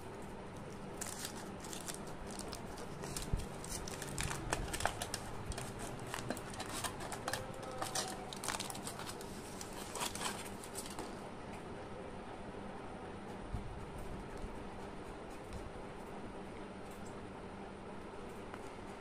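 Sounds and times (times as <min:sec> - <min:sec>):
foil wrapper crinkling: 0:00.6 - 0:11.2.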